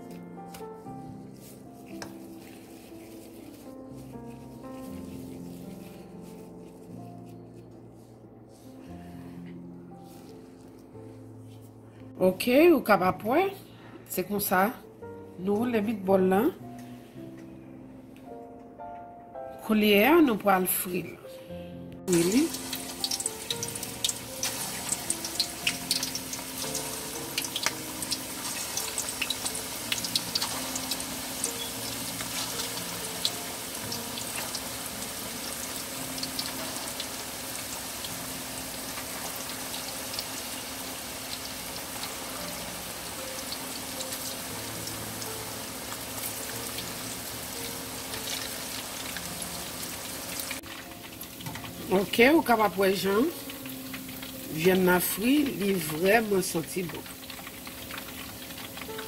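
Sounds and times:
meatballs sizzling in hot oil: 22.1 - 59.0.

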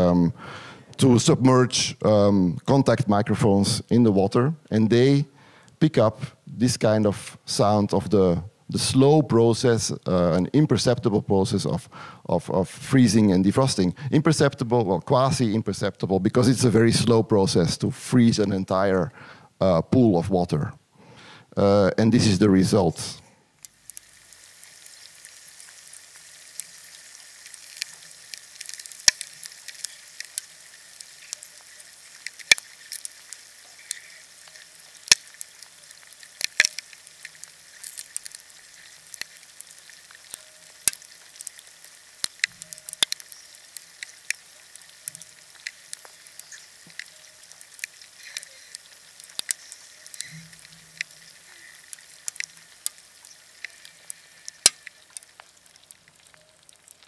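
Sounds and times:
faint steady hiss: 0.0 - 57.0
ice crackling and popping: 22.8 - 57.0.

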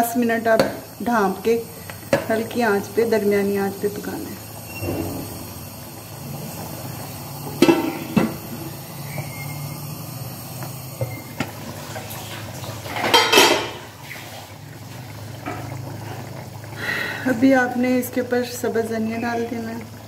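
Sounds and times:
pot lid clanking: 7.5 - 8.6, 12.9 - 13.9.

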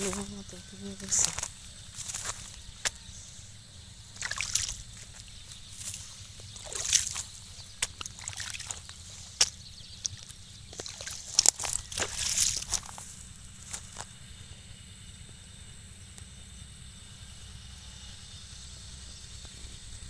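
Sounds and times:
sloshing steps through water: 4.2 - 13.2.

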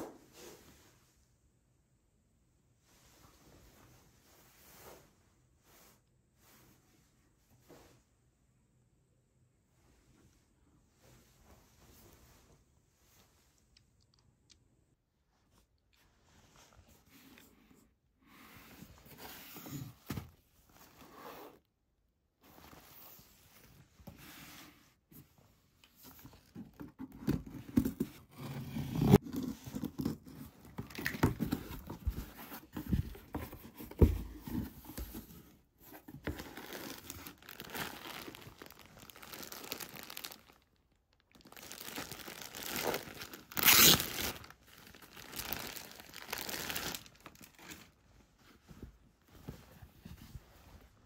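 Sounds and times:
plastic wrapping crinkling and tearing: 36.2 - 47.9
packing tape ripping: 41.7 - 44.5.

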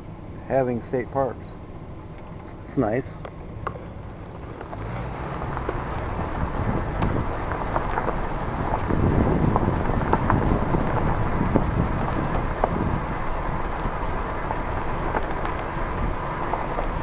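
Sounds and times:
road rumble: 0.0 - 17.0
tyres crackling on gravel: 0.5 - 17.0
wind buffeting microphone: 4.1 - 17.0.

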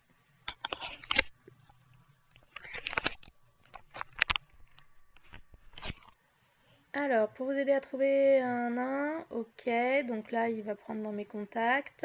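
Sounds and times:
crackly clicking: 0.4 - 6.2.

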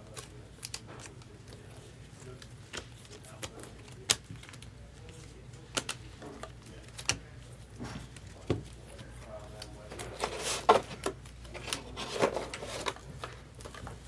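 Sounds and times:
cards clicking and snapping: 0.0 - 7.4.

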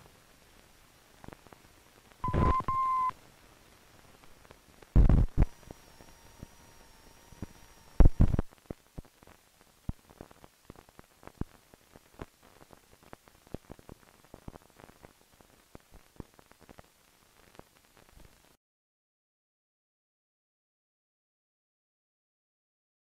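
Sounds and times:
faint steady tone: 0.0 - 18.6
film soundtrack crackles and pops: 0.0 - 18.6.

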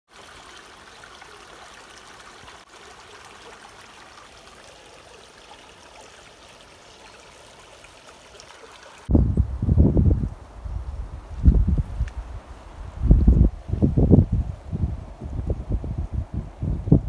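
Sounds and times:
brook babbling over riffles: 0.1 - 9.3.

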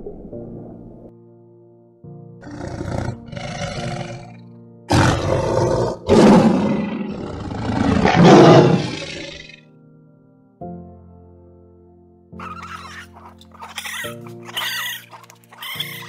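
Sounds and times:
background music with held notes: 0.1 - 16.0
large animal roaring: 2.4 - 9.6.

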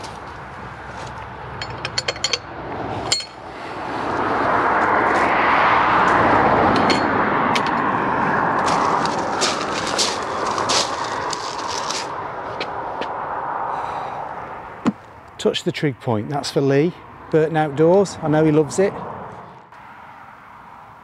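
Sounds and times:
footsteps on gravel: 0.0 - 1.3, 8.5 - 13.2
broad rushing noise: 2.5 - 15.1.

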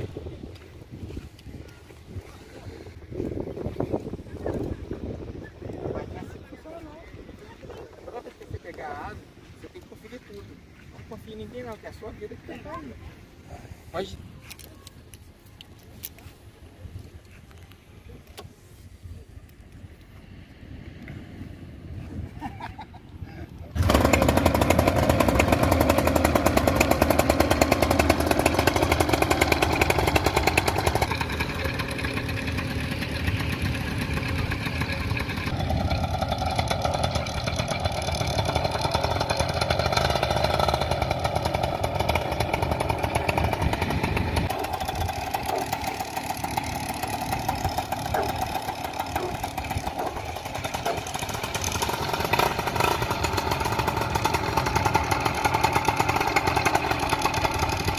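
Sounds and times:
two-stroke engine buzzing: 23.7 - 57.9.

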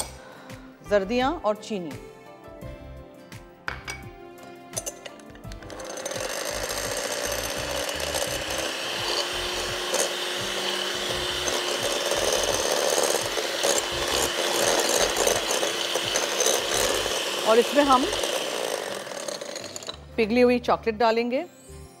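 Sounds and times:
electric mixer running: 5.5 - 20.0.

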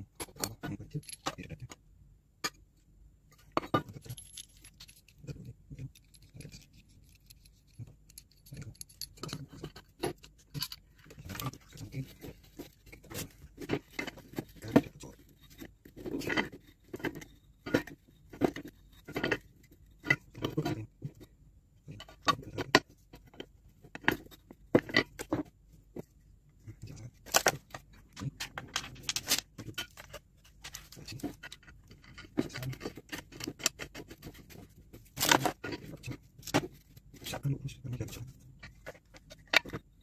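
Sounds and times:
metal clinks and clicks: 3.9 - 5.2, 5.8 - 11.4.

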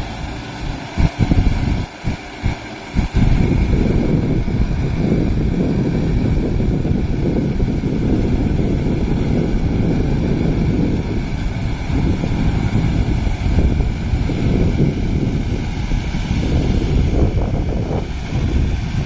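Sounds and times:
tractor diesel engine under load: 0.0 - 19.0
wind buffeting microphone: 0.0 - 19.0.

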